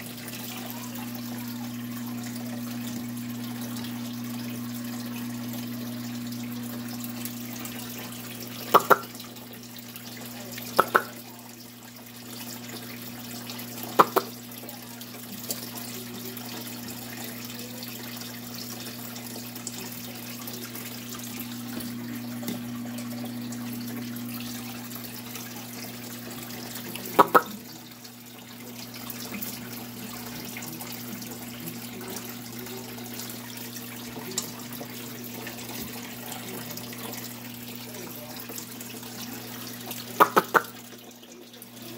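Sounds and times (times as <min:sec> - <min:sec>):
running water: 0:00.0 - 0:41.9
electrical hum: 0:15.7 - 0:28.0.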